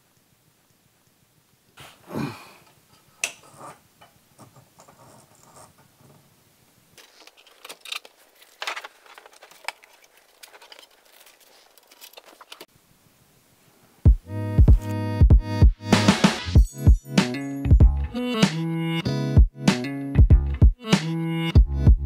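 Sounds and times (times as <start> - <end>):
plastic bag rustling: 7.0 - 12.7.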